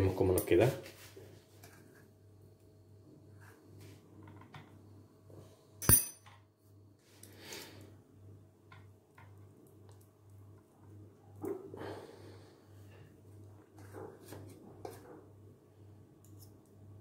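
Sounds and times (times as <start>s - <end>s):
metal clink: 5.8s - 6.3s.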